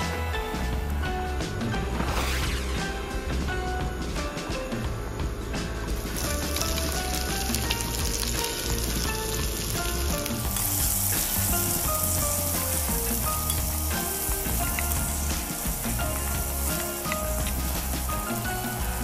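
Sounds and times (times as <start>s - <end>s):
background music with steady beat: 0.0s - 19.0s
food sizzling in a pan: 6.0s - 19.0s.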